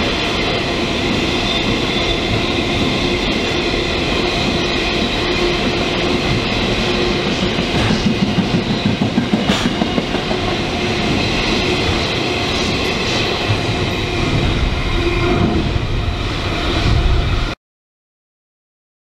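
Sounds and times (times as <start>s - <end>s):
freight train wheels clattering: 0.9s - 14.6s.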